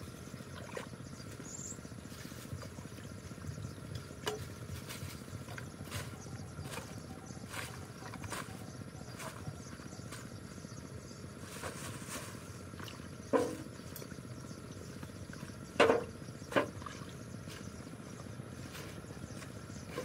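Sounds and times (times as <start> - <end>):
outdoor background hiss: 0.0 - 20.0
knocks and splashes in water: 15.7 - 17.2.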